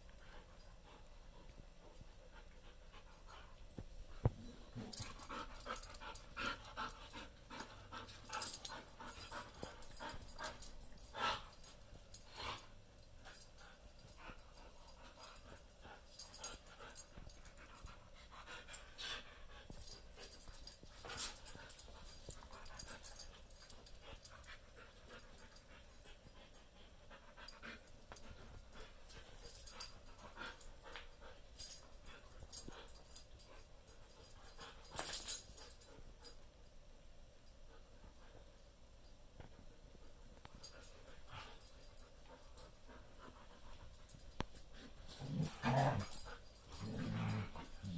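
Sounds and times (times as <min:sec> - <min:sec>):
dogs panting: 0:00.1 - 0:36.1.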